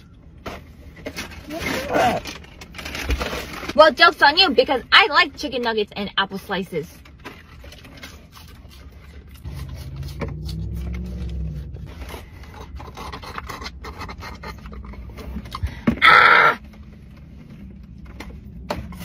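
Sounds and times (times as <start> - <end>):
food packaging rustling: 0.3 - 4.2
low wavering hum: 8.8 - 13.7.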